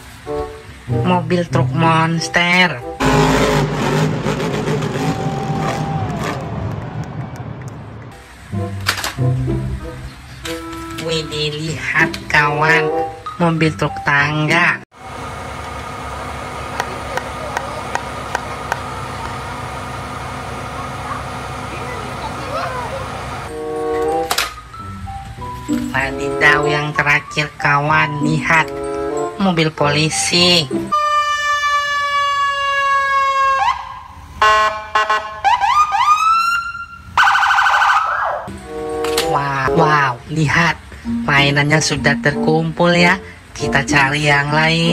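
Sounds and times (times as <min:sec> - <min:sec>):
truck engine running: 0:02.8 - 0:11.8, 0:15.0 - 0:24.3
police car siren: 0:03.0 - 0:08.1, 0:30.9 - 0:39.7
hydraulic high whine: 0:03.0 - 0:11.2, 0:14.9 - 0:24.4.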